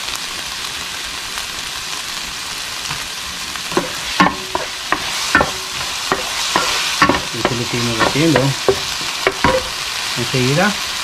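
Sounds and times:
vegetables sizzling in a frying pan: 0:00.0 - 0:11.0
wooden spoon scraping a pan: 0:03.7 - 0:09.9.

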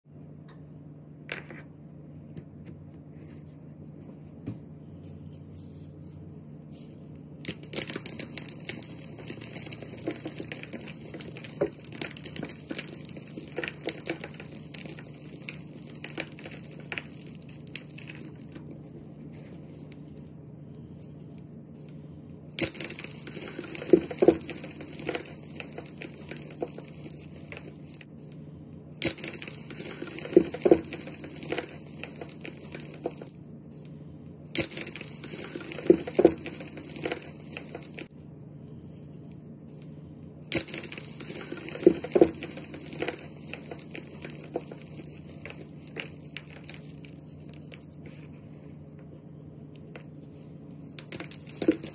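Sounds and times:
hands crushing chalk blocks: 0:06.8 - 0:20.2, 0:21.8 - 0:28.1, 0:29.0 - 0:33.3, 0:34.5 - 0:38.1, 0:40.5 - 0:48.2, 0:49.7 - 0:51.9.

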